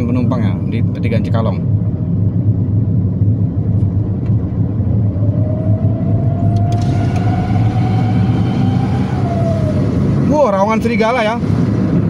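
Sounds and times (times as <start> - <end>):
engine and road noise in car: 0.0 - 12.0
thin pitched whine: 4.8 - 11.0.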